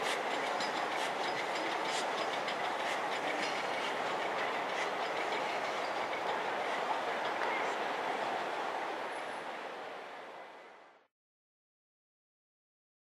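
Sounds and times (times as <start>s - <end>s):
train wheels clicking over rail joints: 0.0s - 8.2s
steady rush of train noise: 0.0s - 11.1s.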